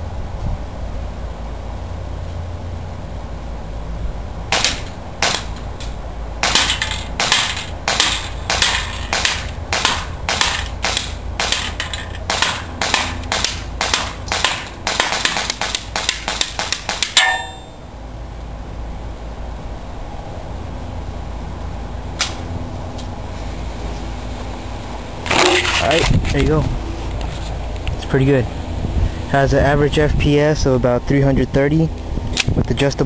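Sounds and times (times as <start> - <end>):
airsoft pistol firing: 4.5 - 5.6, 6.4 - 17.6
metallic ring of plate target: 6.4 - 17.9, 25.2 - 26.1.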